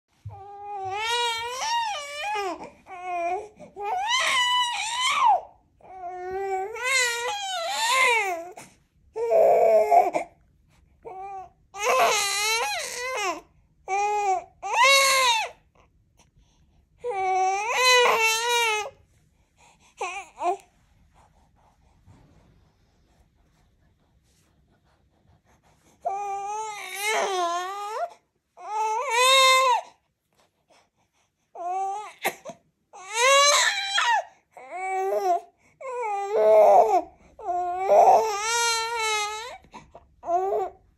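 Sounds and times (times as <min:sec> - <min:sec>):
baby fussing and crying: 0:00.3 - 0:10.4, 0:11.0 - 0:15.6, 0:17.0 - 0:19.0, 0:19.7 - 0:20.7, 0:26.0 - 0:30.0, 0:31.6 - 0:40.8.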